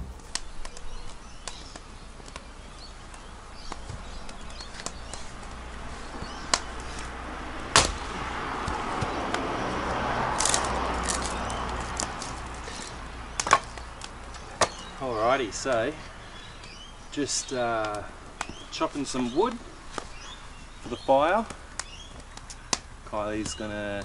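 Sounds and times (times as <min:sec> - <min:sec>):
hatchet chopping firewood: 0:07.8 - 0:08.0, 0:13.3 - 0:14.9.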